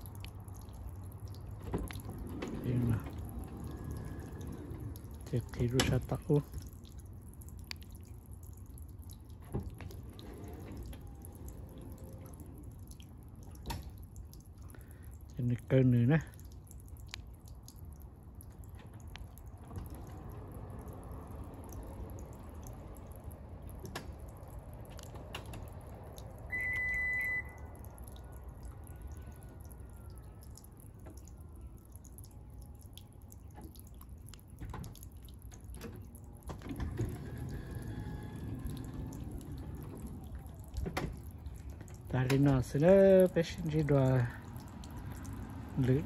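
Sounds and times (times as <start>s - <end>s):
water dripping: 0.0s - 46.0s
short high beep: 26.5s - 27.7s.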